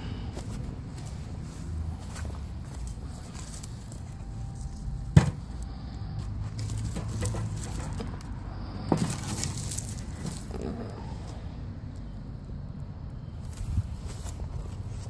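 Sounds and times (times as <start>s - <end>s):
footsteps on sandy ground: 0.0s - 5.6s.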